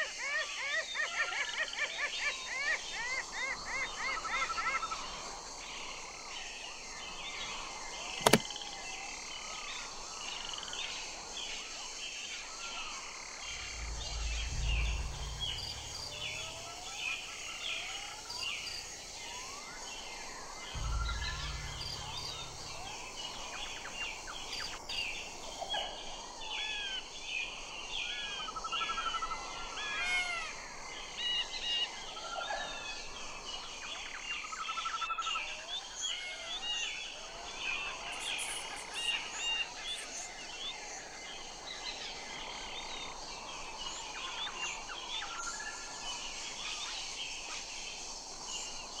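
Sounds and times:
sharp click: 8.2s - 8.5s, 20.8s - 23.8s
low rumbles: 13.4s - 19.7s, 20.8s - 25.6s
birds chirping and whistling: 20.8s - 25.4s.

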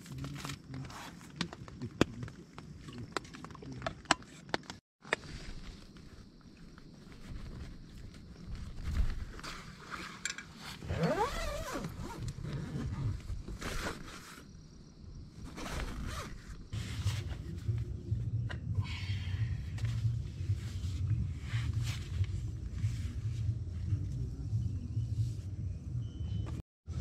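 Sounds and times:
nylon fabric rustling: 5.2s - 14.5s, 15.4s - 17.5s
tent zipper being drawn: 9.2s - 14.5s, 15.4s - 17.2s
steady low rumble: 16.8s - 26.3s.

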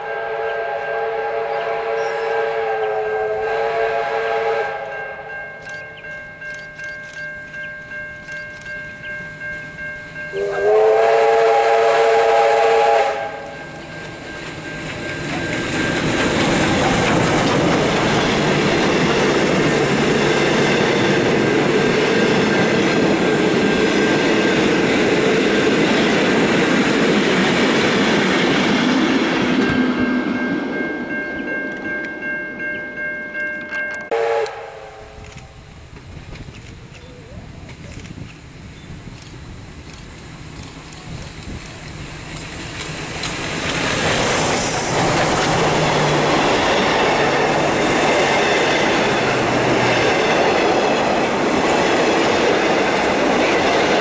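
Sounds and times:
steam locomotive chime whistle: 0.0s - 25.0s, 29.6s - 35.5s
train exhaust and wheel noise: 0.0s - 54.0s
pulsing ringing bell: 4.9s - 10.7s, 13.5s - 16.4s, 29.6s - 34.2s.

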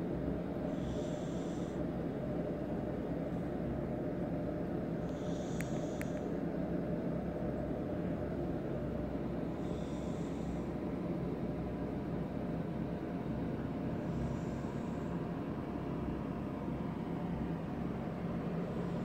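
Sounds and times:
cat breathing through nose: 0.7s - 1.9s, 5.0s - 6.3s, 9.4s - 10.9s, 13.8s - 15.8s, 18.2s - 19.0s.

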